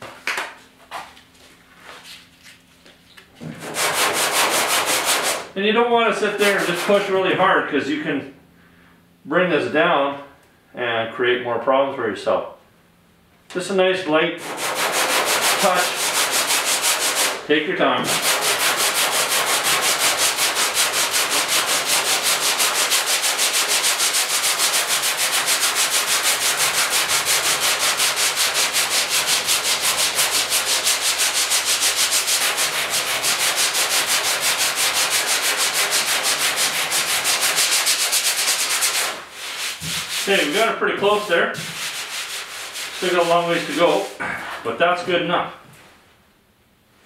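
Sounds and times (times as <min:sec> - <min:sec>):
sandpaper rasping: 0:03.6 - 0:05.5, 0:06.4 - 0:07.2, 0:14.4 - 0:17.4, 0:18.0 - 0:44.2.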